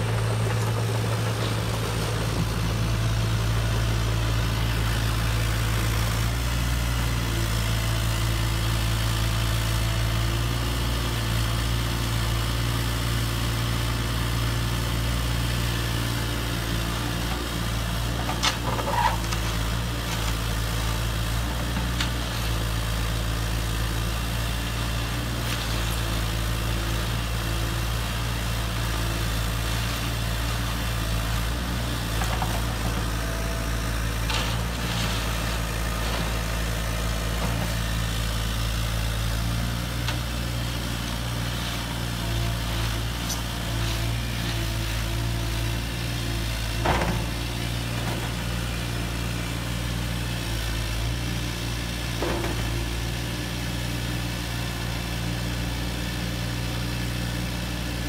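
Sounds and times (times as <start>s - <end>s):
heavy engine idling: 0.0s - 58.0s.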